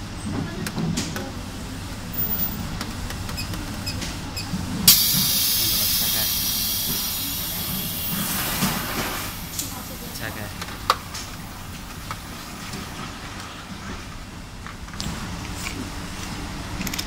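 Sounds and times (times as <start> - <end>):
valve opening: 4.9 - 9.4
compressed gas hissing: 4.9 - 10.2.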